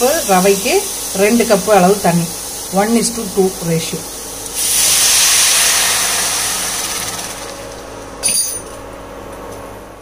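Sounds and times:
water hissing in hot pan: 0.0s - 7.6s.

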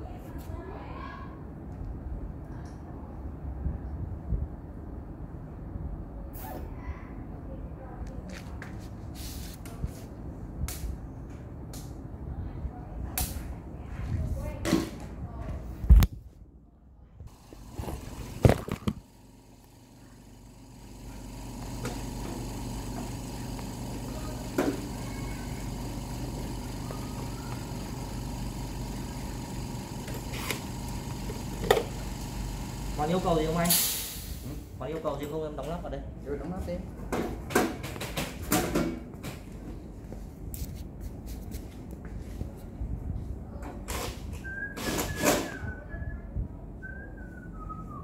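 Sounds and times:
low electrical hum: 0.0s - 44.3s
person whistling: 44.4s - 48.0s.

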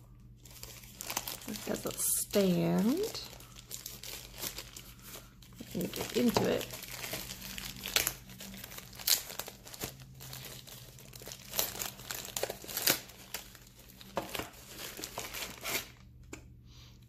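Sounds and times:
plastic bag crinkling: 0.4s - 16.0s.

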